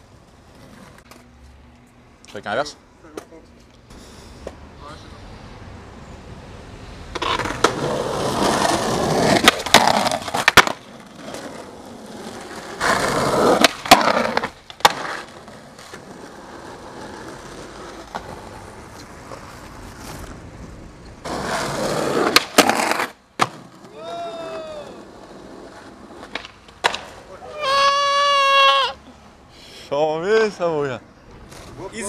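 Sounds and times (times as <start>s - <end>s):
skateboard wheels rolling on pavement: 0.0s - 32.0s
street background: 0.0s - 32.0s
skateboard clacks: 7.1s - 11.7s, 12.3s - 20.3s, 21.2s - 27.9s.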